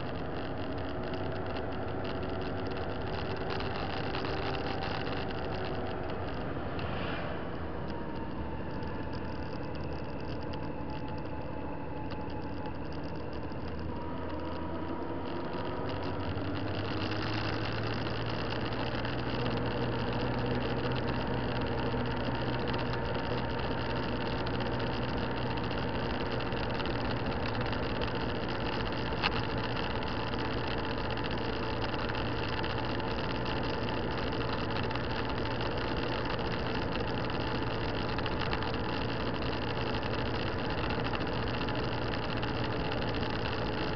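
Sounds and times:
motorcycle engine running: 0.0s - 43.9s
wind and road noise: 0.0s - 43.9s.

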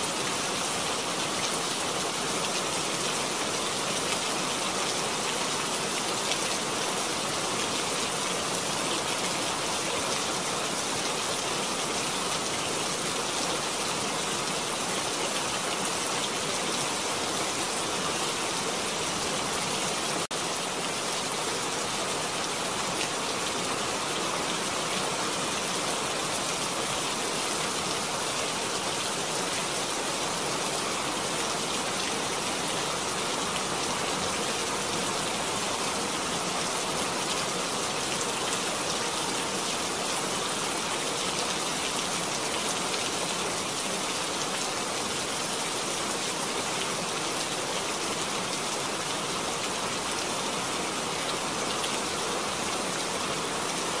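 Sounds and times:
steady rain falling: 0.0s - 54.0s.

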